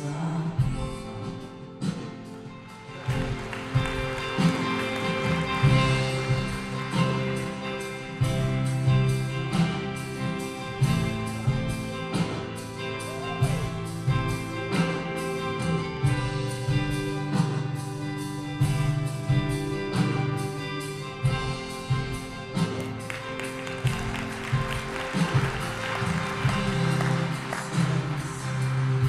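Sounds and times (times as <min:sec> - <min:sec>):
electric guitars: 0:00.0 - 0:29.0
steady drum beat: 0:02.8 - 0:18.0, 0:18.6 - 0:29.0.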